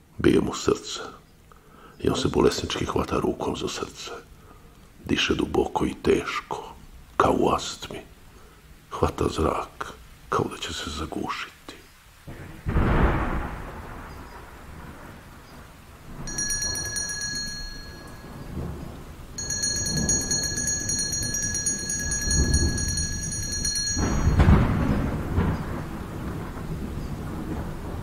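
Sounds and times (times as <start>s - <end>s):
rain: 0.0s - 28.0s
rolling thunder: 12.3s - 28.0s
high steady ringing tone: 16.2s - 25.2s.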